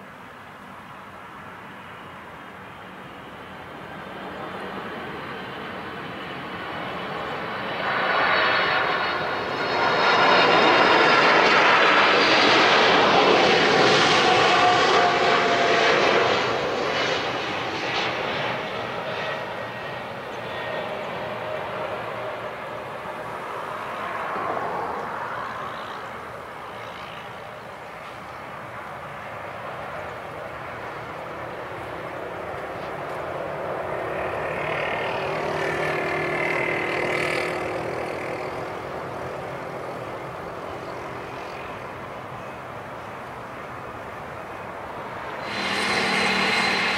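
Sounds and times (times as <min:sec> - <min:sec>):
jet engines roaring: 0:01.2 - 0:46.9.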